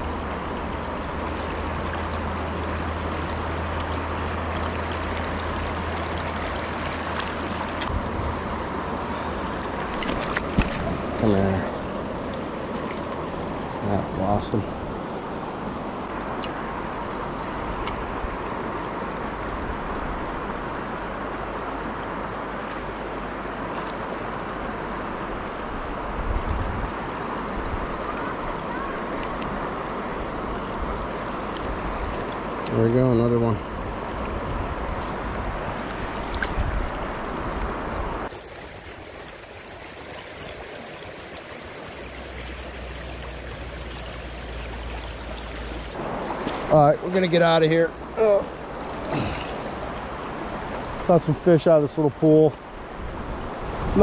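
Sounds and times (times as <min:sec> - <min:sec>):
river water rushing over rocks: 0:00.1 - 0:13.8, 0:38.3 - 0:46.3.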